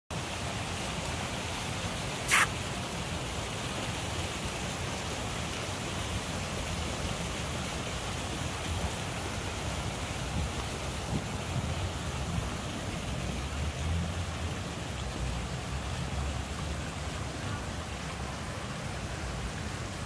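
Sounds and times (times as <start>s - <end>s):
short sharp hiss: 2.2s - 2.6s
wind rumble on microphone: 9.9s - 14.8s.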